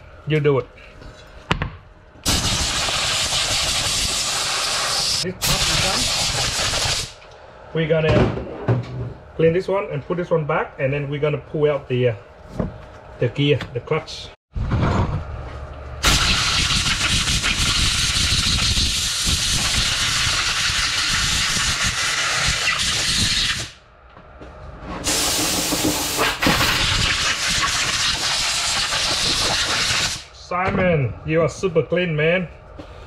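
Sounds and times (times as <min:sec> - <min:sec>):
compressed air blow gun hissing: 0:02.3 - 0:07.2, 0:16.0 - 0:23.8, 0:25.1 - 0:30.3.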